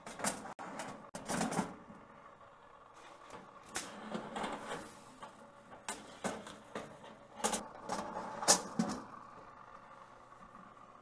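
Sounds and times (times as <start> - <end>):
metal oven racks clattering: 0.0 - 1.9, 3.4 - 9.1.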